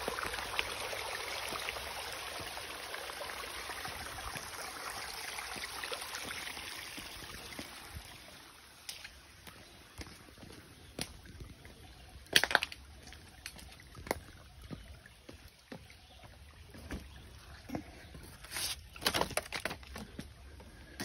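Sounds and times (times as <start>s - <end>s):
faint stream trickling: 0.0s - 21.0s
footsteps crunching on loose stones: 18.5s - 20.3s.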